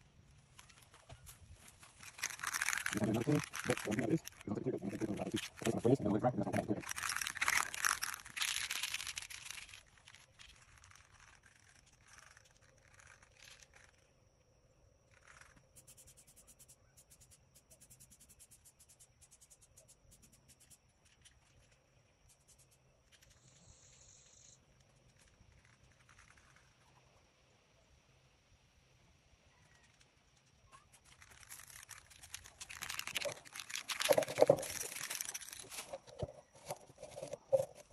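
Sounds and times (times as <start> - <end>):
rapid faint clicks: 29.8 - 37.9.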